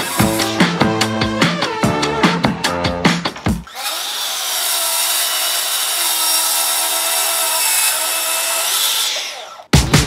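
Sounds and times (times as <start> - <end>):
track saw cutting wood: 3.7 - 9.7.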